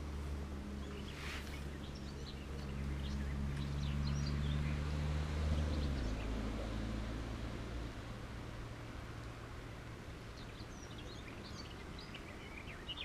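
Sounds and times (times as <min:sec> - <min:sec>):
small birds chirping: 0:00.6 - 0:06.5, 0:10.1 - 0:13.0.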